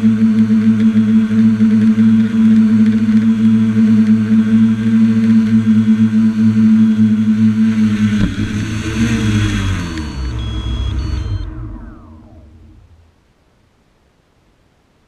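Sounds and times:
drone motors humming: 0:00.0 - 0:13.3
drone landing knock: 0:07.8 - 0:13.0.

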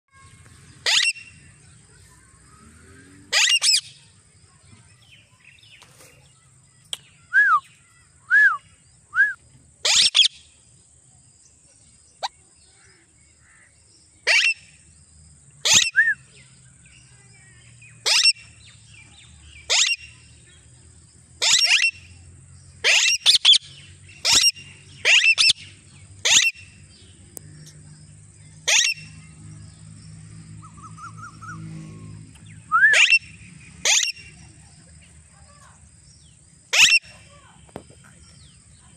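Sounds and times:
parakeets calling harshly: 0:00.2 - 0:01.6, 0:03.3 - 0:04.0, 0:09.8 - 0:10.4, 0:13.4 - 0:14.8, 0:15.6 - 0:16.0, 0:18.0 - 0:18.8, 0:19.6 - 0:20.3, 0:21.4 - 0:22.1, 0:22.8 - 0:26.9, 0:28.6 - 0:29.4, 0:30.7 - 0:34.5, 0:36.7 - 0:37.6
whistled chirps falling in pitch: 0:06.9 - 0:09.4, 0:15.7 - 0:16.3, 0:32.6 - 0:34.3.

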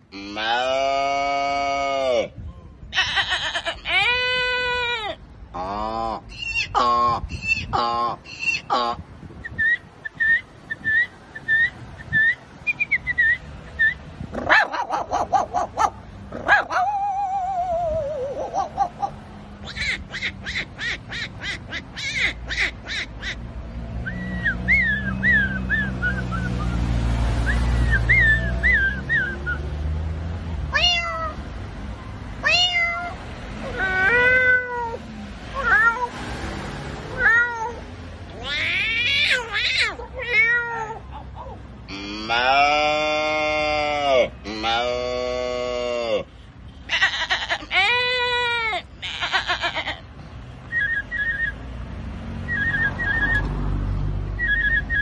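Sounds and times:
man imitating yapping barks: 0:00.1 - 0:02.4, 0:14.3 - 0:22.8, 0:38.6 - 0:46.3
man imitating cat meows: 0:00.1 - 0:07.2, 0:41.9 - 0:46.3
whistled warble: 0:09.4 - 0:14.0, 0:24.0 - 0:29.7, 0:50.7 - 0:51.6, 0:52.4 - 0:53.5, 0:54.4 - 0:55.0
man whimpering like a dog: 0:16.8 - 0:18.7, 0:40.8 - 0:46.3.

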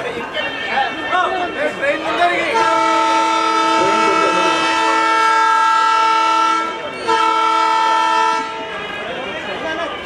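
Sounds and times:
train horn blast: 0:02.4 - 0:09.0.

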